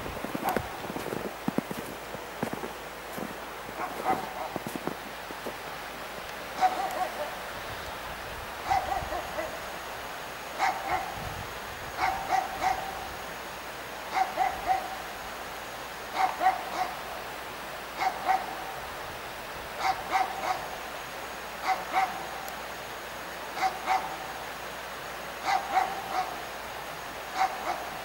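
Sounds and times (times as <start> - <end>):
steady background noise: 0.0 - 28.0
dog barking: 3.8 - 4.7, 6.6 - 7.4, 8.6 - 9.6, 10.6 - 11.2, 12.0 - 13.0, 14.1 - 15.0, 16.1 - 17.0, 18.0 - 18.6, 19.8 - 20.7, 21.6 - 22.3, 23.6 - 24.2, 25.4 - 26.4, 27.4 - 28.0.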